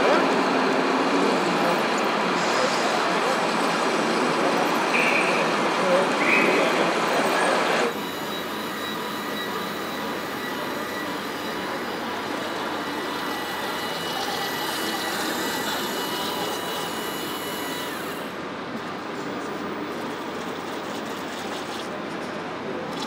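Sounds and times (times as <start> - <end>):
busy exhibition hall background: 0.0 - 23.0
faint high whine: 7.9 - 18.4.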